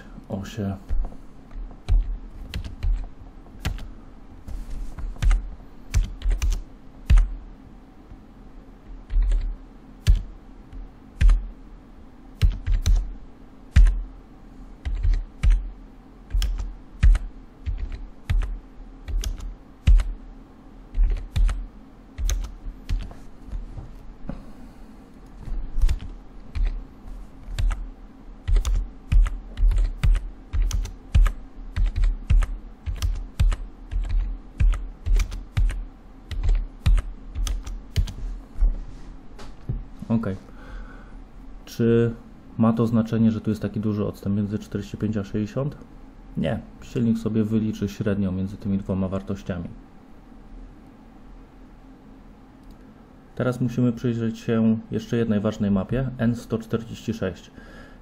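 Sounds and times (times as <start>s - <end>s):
faint steady hum: 0.0s - 58.0s
keyboard typing: 1.8s - 3.9s, 5.0s - 7.4s, 9.0s - 11.4s, 12.4s - 13.1s, 13.8s - 14.0s, 14.8s - 15.6s, 16.3s - 20.1s, 20.9s - 21.6s, 22.2s - 23.2s, 25.8s - 26.8s, 27.4s - 27.8s, 28.4s - 38.2s.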